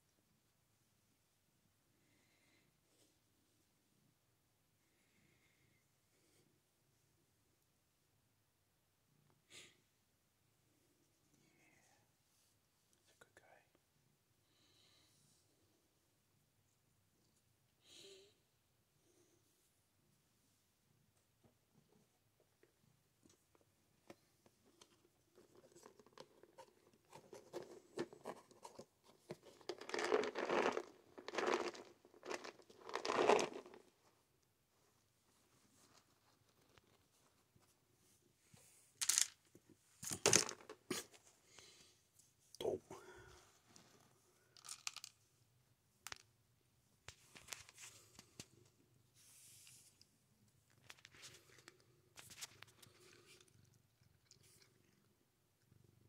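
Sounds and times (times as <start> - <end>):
soft rustle: 19.1 - 39.0, 47.0 - 55.2
cat crunching dry food: 29.4 - 33.9, 44.6 - 45.1, 51.1 - 55.1
treats rattling in plastic tub: 29.4 - 33.9.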